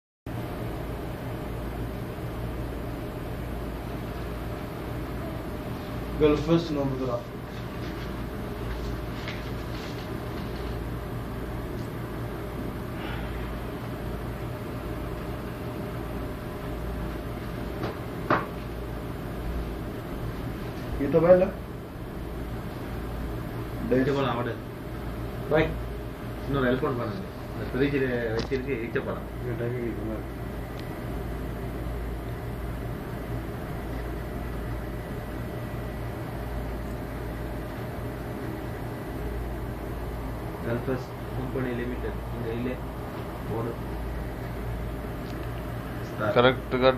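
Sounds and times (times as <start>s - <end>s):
low room hum: 0.3s - 46.9s
thin high whine: 3.7s - 17.7s.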